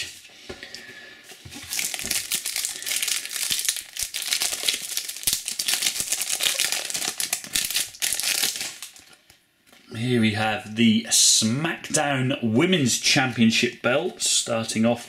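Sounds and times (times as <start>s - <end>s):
foil pack crinkling and tearing: 1.6s - 9.2s.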